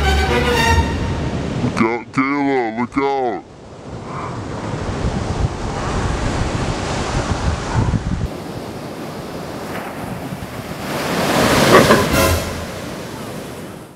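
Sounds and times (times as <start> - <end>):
ocean surf on beach: 1.0 - 13.9
wind rumbling on microphone: 1.1 - 1.8, 3.5 - 13.9.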